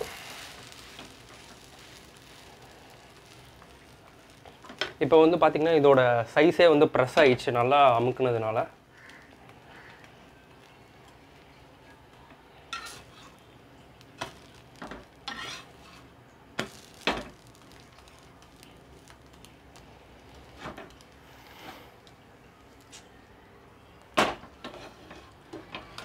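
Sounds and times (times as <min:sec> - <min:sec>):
metal spatula scraping griddle: 0:12.7 - 0:13.5, 0:14.2 - 0:17.3, 0:24.6 - 0:26.0.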